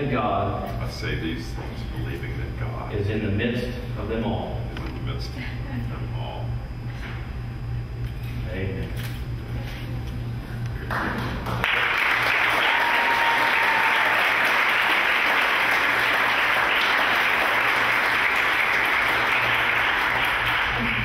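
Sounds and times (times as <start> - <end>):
audience applauding: 10.9 - 21.0.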